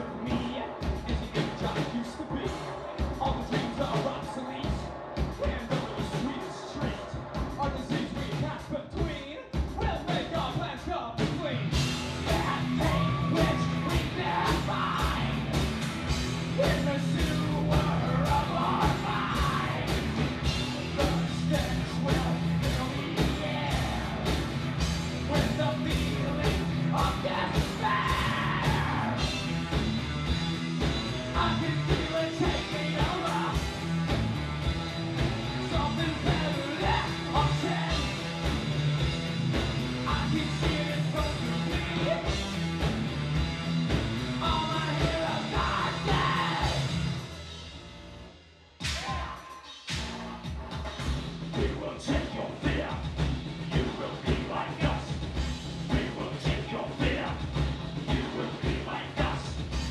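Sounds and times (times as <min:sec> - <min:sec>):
drums fast steady beat: 0:00.0 - 0:48.1, 0:48.8 - 0:59.9
person yelling vocals: 0:12.3 - 0:15.4, 0:27.2 - 0:29.2, 0:44.8 - 0:46.8.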